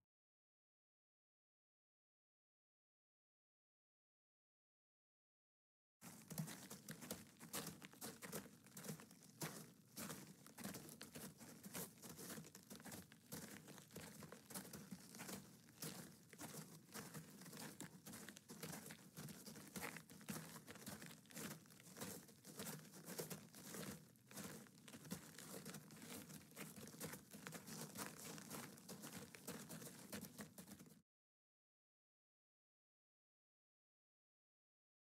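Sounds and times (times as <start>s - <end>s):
footsteps on gravel: 6.0s - 31.0s
small rustles: 6.0s - 31.0s.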